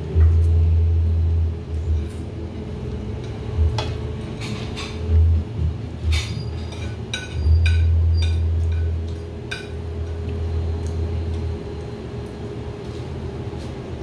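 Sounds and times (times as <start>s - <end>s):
low steady hum: 0.0s - 14.0s
tableware clinking: 6.1s - 9.8s.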